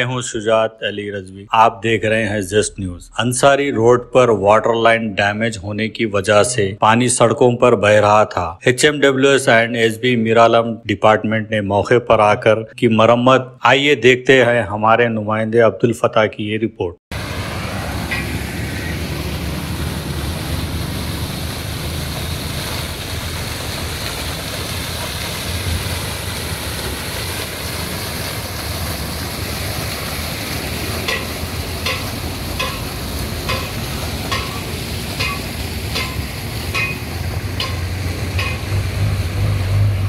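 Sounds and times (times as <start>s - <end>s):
water gushing across road: 17.1s - 40.0s.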